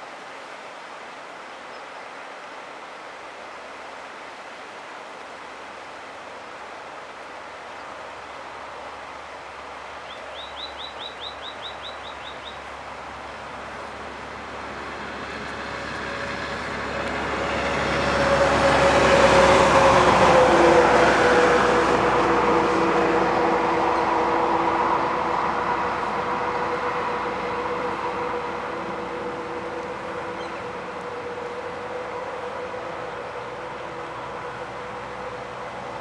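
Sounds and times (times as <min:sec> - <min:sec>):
bird trilling: 0:10.3 - 0:12.6
vehicle passing: 0:13.1 - 0:36.0.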